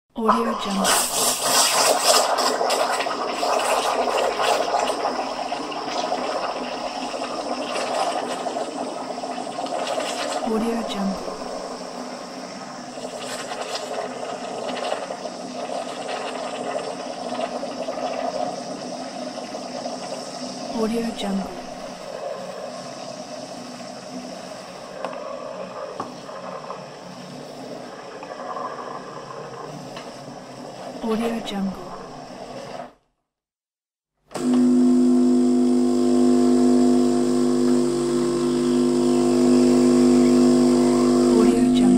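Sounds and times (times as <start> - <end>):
espresso machine hissing and gurgling: 0.7 - 31.0, 34.3 - 41.9
espresso machine running: 34.3 - 41.9.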